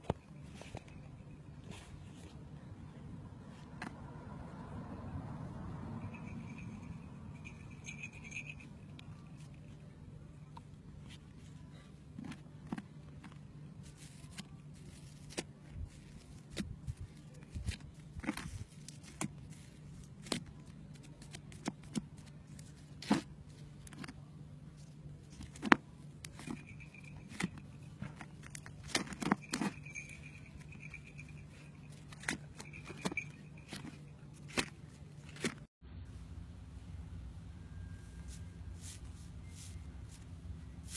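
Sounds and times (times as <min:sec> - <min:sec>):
steady low hum: 0:32.6 - 0:40.9.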